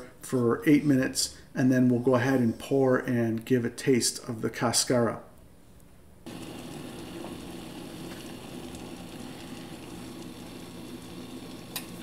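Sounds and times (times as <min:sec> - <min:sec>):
electric kettle hissing and rumbling: 0:06.3 - 0:12.0.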